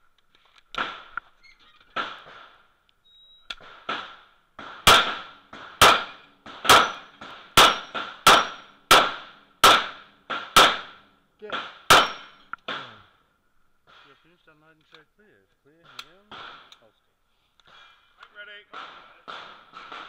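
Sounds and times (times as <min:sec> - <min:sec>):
pistol shots echoing: 0:03.6 - 0:13.0, 0:15.8 - 0:16.8, 0:18.7 - 0:20.0.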